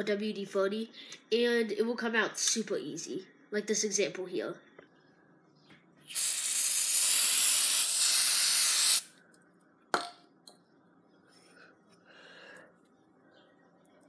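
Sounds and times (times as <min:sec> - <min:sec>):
aerosol can spraying: 0:06.1 - 0:09.1.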